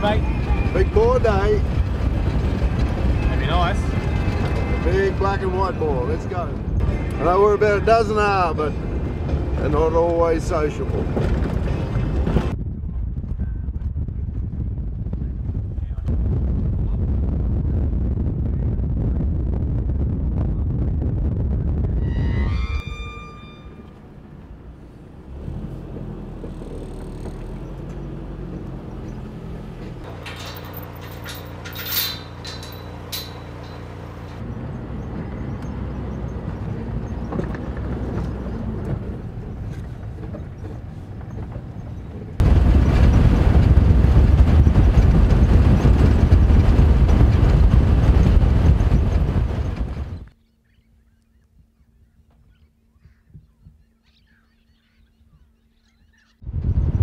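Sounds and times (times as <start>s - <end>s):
vehicle engine running: 0.0s - 7.4s, 23.8s - 50.3s
wind noise: 0.0s - 50.4s, 56.4s - 57.0s
road noise on dirt track: 0.0s - 50.5s
clicks and rattles: 30.0s - 34.4s.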